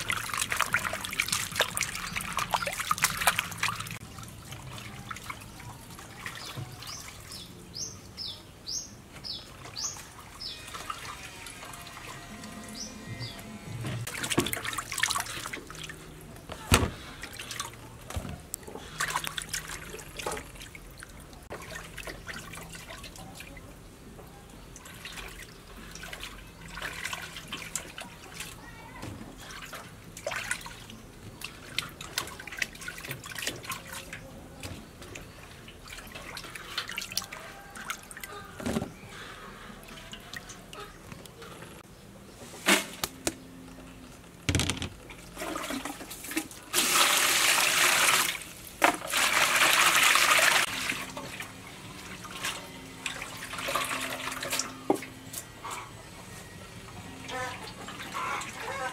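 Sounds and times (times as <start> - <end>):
water pouring into basin: 0.0 - 7.3, 45.4 - 54.8
water splashing: 0.0 - 7.6, 14.1 - 18.0, 18.8 - 23.6
hands washing in water basin: 0.0 - 7.7, 14.1 - 23.6, 24.7 - 28.6, 29.3 - 40.8, 45.2 - 56.0.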